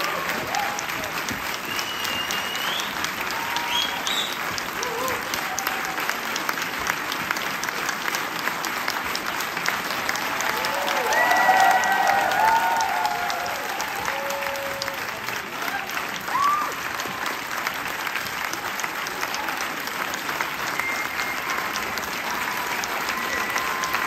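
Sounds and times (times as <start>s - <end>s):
whoops and cheers: 0.0s - 6.3s, 10.2s - 17.2s, 21.2s - 24.0s
audience applauding: 0.0s - 24.0s.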